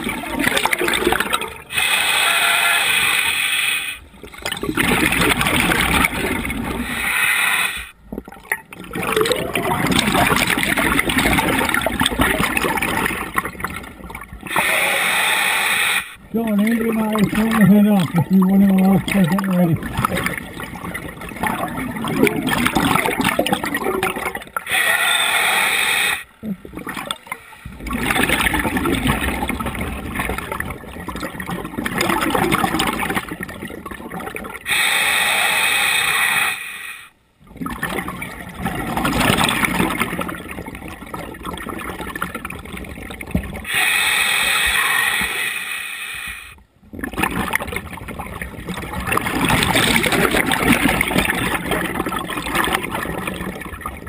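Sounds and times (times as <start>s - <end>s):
bubbling exhaled air: 0.0s - 54.0s
regulator inhalation hiss: 1.7s - 4.0s, 6.8s - 7.9s, 14.5s - 16.2s, 24.7s - 26.3s, 34.7s - 37.1s, 43.7s - 46.6s.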